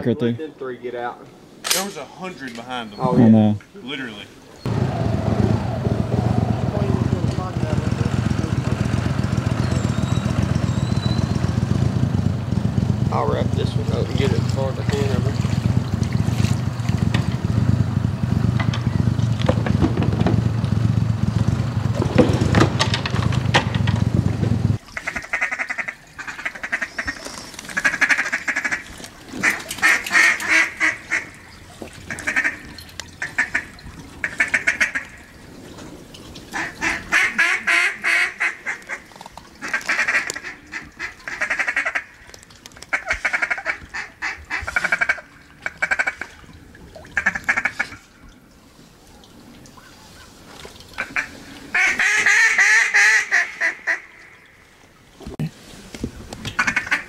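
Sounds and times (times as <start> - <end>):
duck quacking rapidly: 25.0 - 31.3, 32.1 - 32.6, 33.2 - 35.1, 36.6 - 42.1, 42.9 - 46.2, 47.2 - 48.0, 51.0 - 54.0, 56.6 - 57.0.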